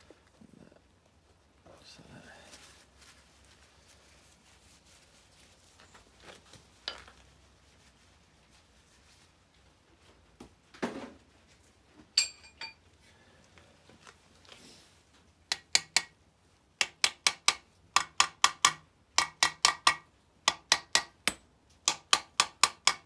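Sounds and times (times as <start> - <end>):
ringing metallic clink: 12.2 - 12.8.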